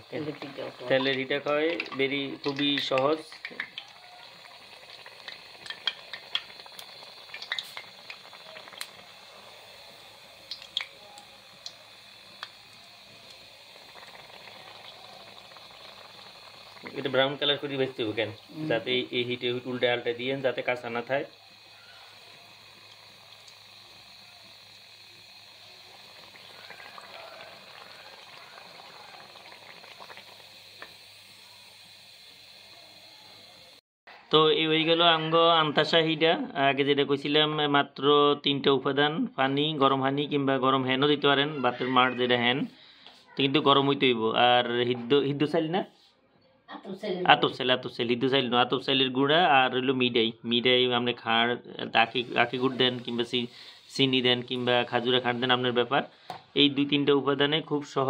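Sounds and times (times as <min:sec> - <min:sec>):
crackles and pops: 0:00.0 - 0:33.8
oil bubbling and sizzling: 0:00.0 - 0:33.8, 0:51.9 - 0:58.0.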